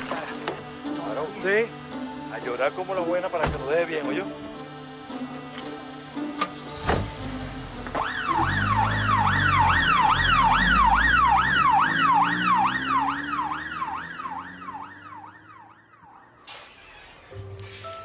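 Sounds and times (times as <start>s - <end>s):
police siren yelping: 8.0s - 16.5s.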